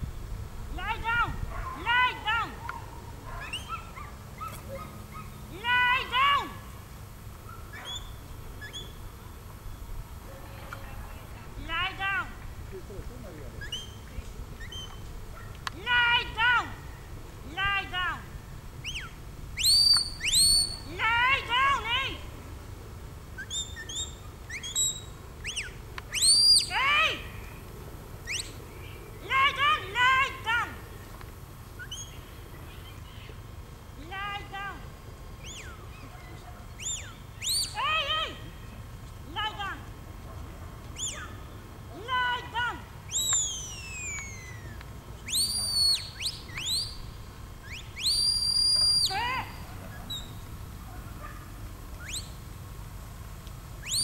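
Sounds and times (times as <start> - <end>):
shepherd's whistle: 18.9 - 20.9, 23.4 - 26.8, 36.8 - 37.8, 43.1 - 47.0, 47.6 - 49.3, 52.0 - 52.4.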